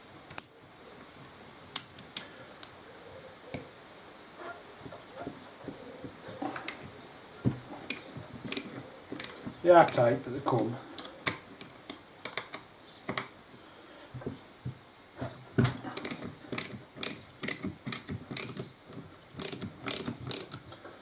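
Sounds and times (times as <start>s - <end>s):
socket ratchet clicking: 1.8s - 2.3s, 7.8s - 10.0s, 16.0s - 18.7s, 19.4s - 20.6s.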